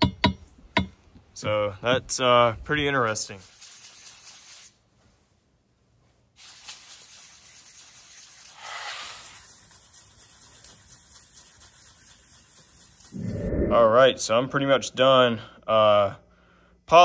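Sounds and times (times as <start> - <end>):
sandpaper rasping on metal blade: 3.2 - 4.8, 6.4 - 13.1.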